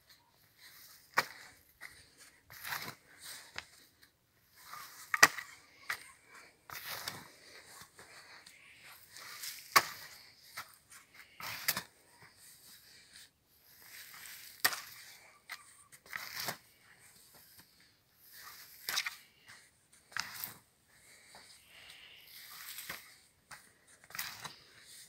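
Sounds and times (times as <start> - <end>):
spade crunching into soil: 6.7 - 7.8, 8.6 - 11.9, 13.6 - 16.7, 20.1 - 20.6, 21.7 - 25.0.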